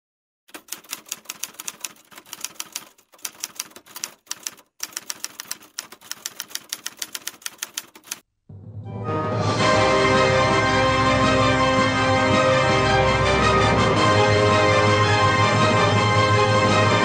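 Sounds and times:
typewriter keys clacking: 0.5 - 8.2
music: 8.5 - 17.0.

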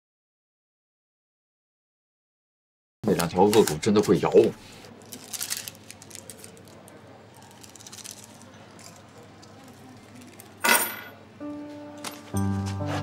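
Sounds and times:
paper rustling: 3.1 - 10.6.

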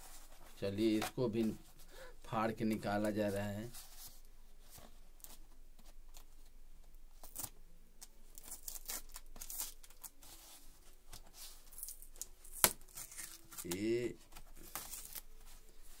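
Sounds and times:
paper packaging tearing: 11.7 - 14.0, 14.6 - 15.2.

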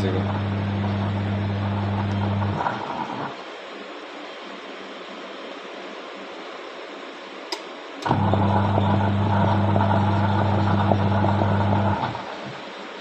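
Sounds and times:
washing machine motor humming: 0.0 - 3.6, 8.0 - 13.0.

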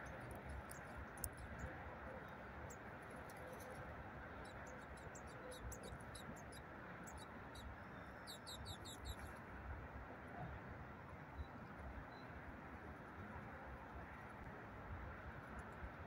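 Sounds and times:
small birds chirping: 0.0 - 9.4
distant road traffic hum: 0.0 - 16.0.

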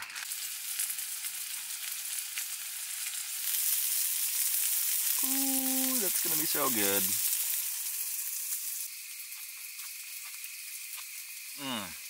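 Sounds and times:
food sizzling in a skillet: 0.0 - 12.0.

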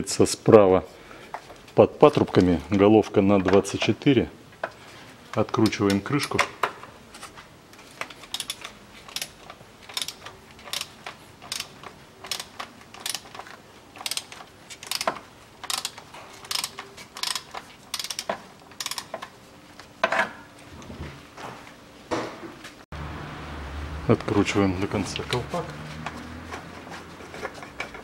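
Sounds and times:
hand ratchet clicking: 8.2 - 19.2.

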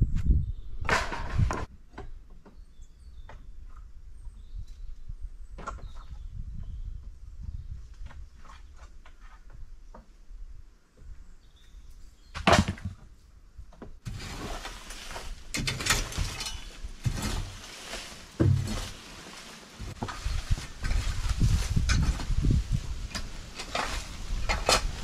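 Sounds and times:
hand tool scraping rubble: 14.1 - 25.0.

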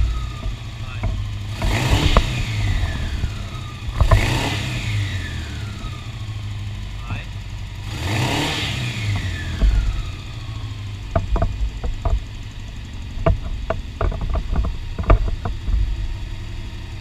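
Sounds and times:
sharp clicks and knocks: 0.0 - 4.5, 11.0 - 15.9
motorcycle engine idling: 0.0 - 17.0.

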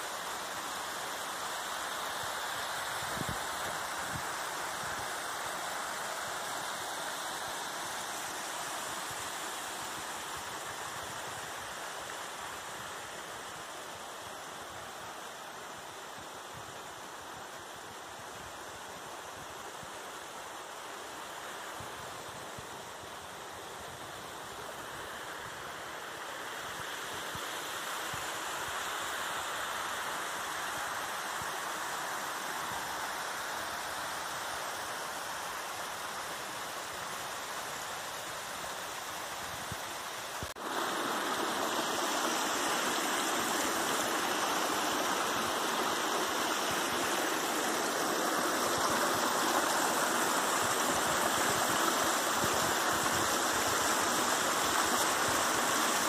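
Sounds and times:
creek water rushing over rocks: 0.0 - 56.0.

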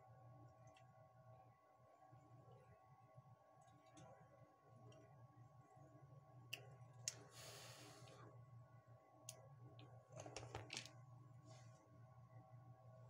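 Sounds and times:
small parts clicking and tapping: 9.3 - 11.0.

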